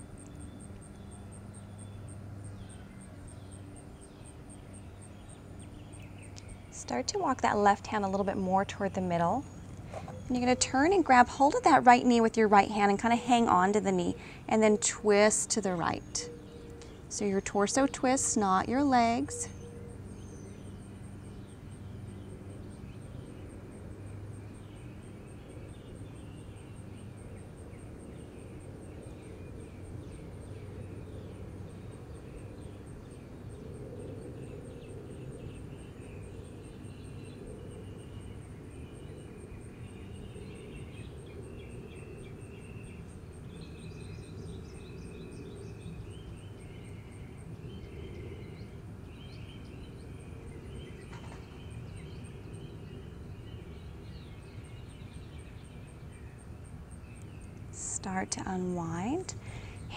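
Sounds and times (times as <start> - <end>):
birds chirping: 0.0 - 23.6, 24.5 - 59.9.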